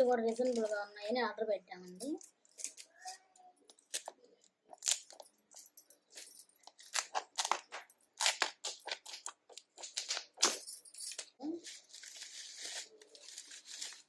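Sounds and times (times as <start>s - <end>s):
plastic pouches crinkling: 0.0s - 0.9s, 6.1s - 14.0s.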